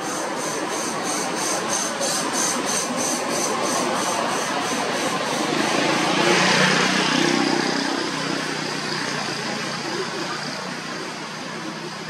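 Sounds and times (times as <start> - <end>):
vehicle engine running: 0.1 - 12.0.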